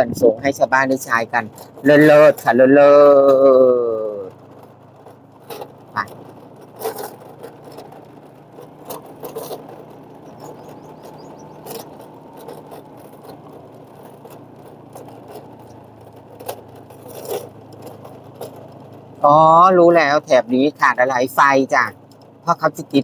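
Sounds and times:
small vehicle engine running: 0.0 - 23.0.

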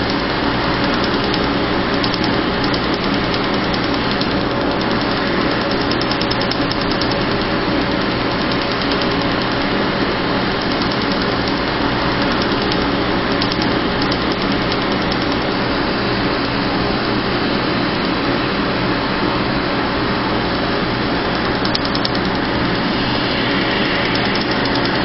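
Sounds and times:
rapid laser ticks: 0.0 - 9.8, 10.4 - 15.8, 20.5 - 25.0
machine hum: 0.0 - 25.0
rushing air from chiller: 0.0 - 25.0.

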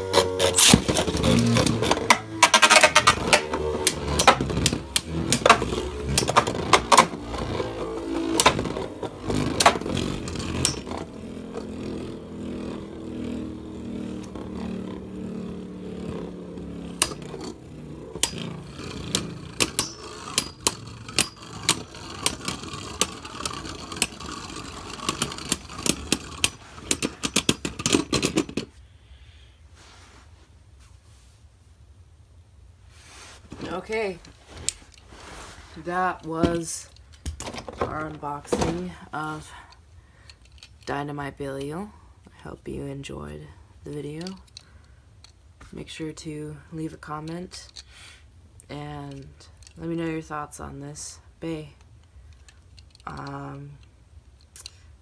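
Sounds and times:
spinning tops whirring: 0.0 - 28.6
spinning tops clacking together: 15.6 - 28.6.

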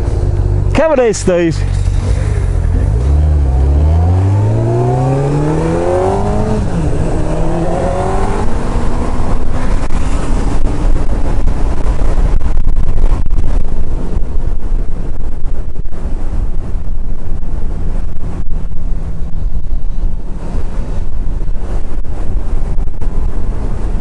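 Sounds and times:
motorcycle engine revving: 1.8 - 10.2
wind buffeting microphone: 1.9 - 24.0.

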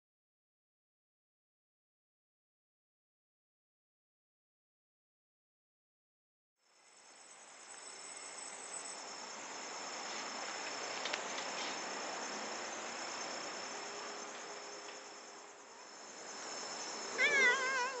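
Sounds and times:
crickets chirping: 6.6 - 18.0.

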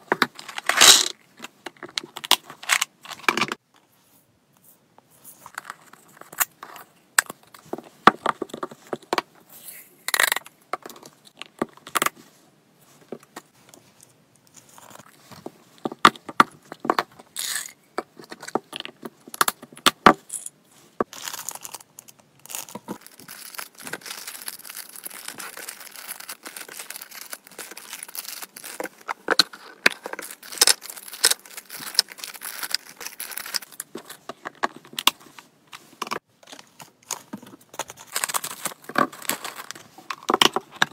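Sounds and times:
dry treats rattling in plastic: 21.1 - 33.8.

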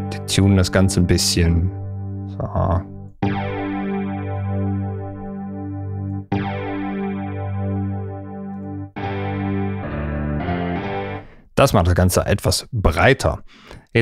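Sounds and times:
detuned synth chords: 1.7 - 11.4.

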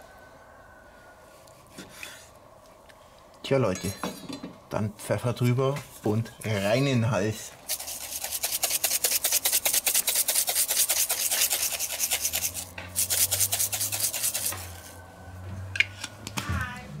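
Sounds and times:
pepper mill grinding: 7.7 - 14.9.

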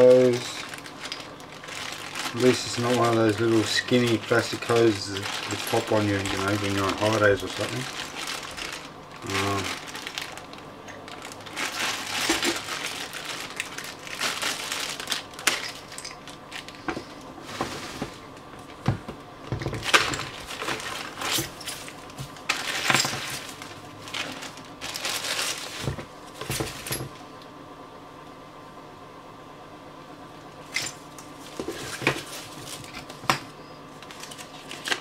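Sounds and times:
plastic packaging crinkling: 0.0 - 18.5, 19.6 - 27.0, 34.0 - 35.0.

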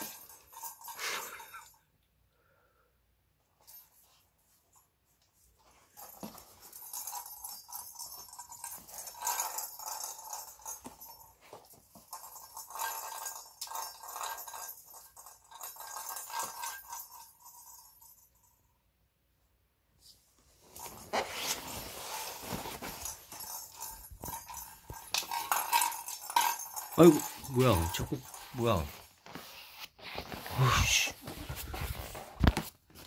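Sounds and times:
plastic toy ball rattling: 6.0 - 18.0, 22.9 - 29.0.

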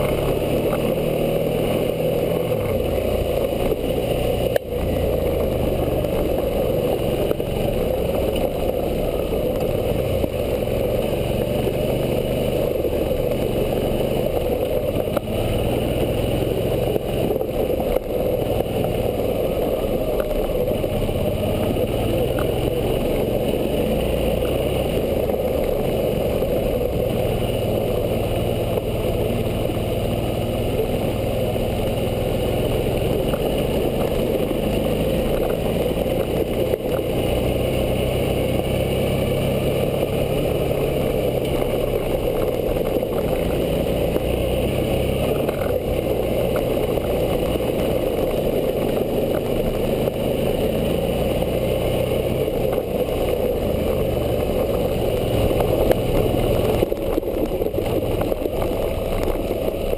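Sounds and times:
motorcycle engine running: 0.0 - 59.9
tyres on gravel: 0.0 - 59.9.

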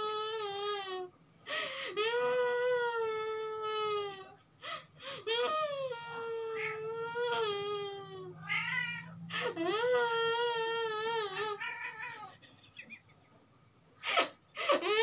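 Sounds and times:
person fake crying: 5.1 - 8.4, 9.3 - 12.9.

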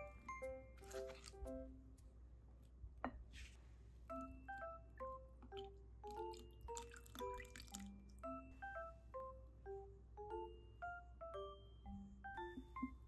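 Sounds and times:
gentle ringing melody: 0.0 - 0.8, 4.1 - 13.0.

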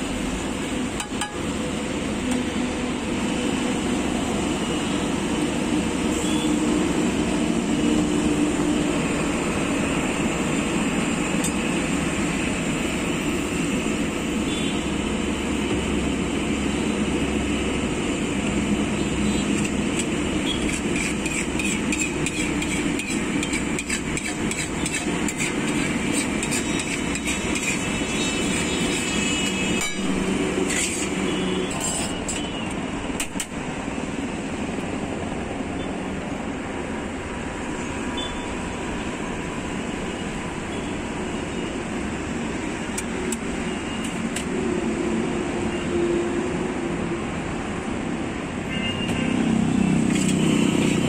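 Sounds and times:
metal spatula scraping griddle: 19.8 - 32.5.

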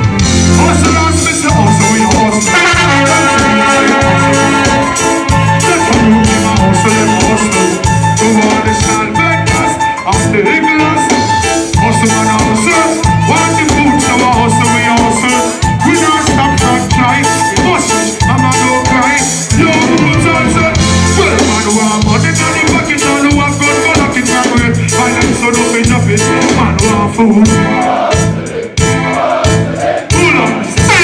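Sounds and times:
live reggae band playing: 0.0 - 31.0.

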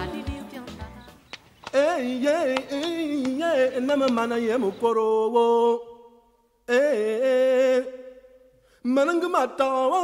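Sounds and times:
person singing: 0.0 - 5.9.

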